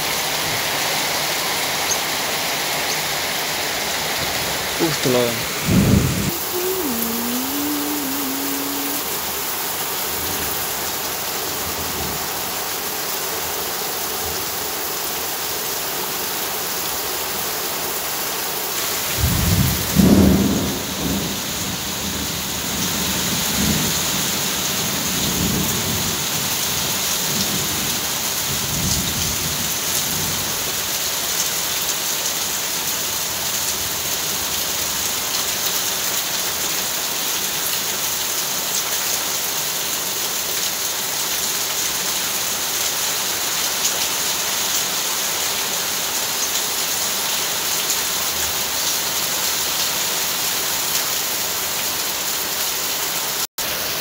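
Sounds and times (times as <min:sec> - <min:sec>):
heavy rain: 0:00.0 - 0:54.0
thunder rumbling: 0:05.4 - 0:06.4, 0:19.1 - 0:22.2.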